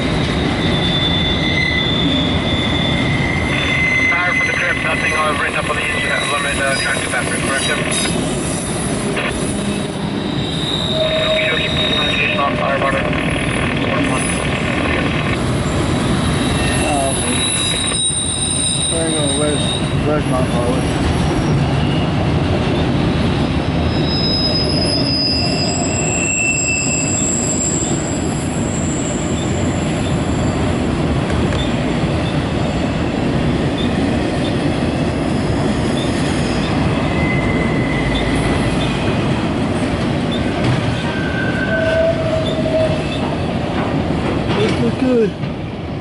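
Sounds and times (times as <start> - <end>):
freight train wheels rumbling on rails: 0.0 - 46.0
high-pitched wheel squeals: 0.3 - 5.3, 8.3 - 12.8, 15.6 - 22.1, 23.9 - 30.6, 35.3 - 39.0, 41.0 - 43.2.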